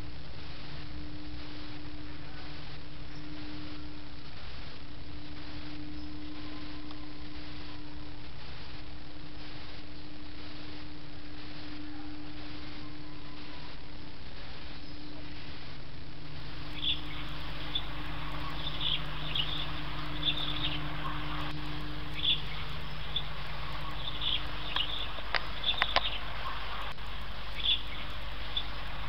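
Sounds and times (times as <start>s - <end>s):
low steady hiss: 0.0s - 29.0s
high bird chirps: 16.3s - 29.0s
sharp clicks: 16.4s - 29.0s.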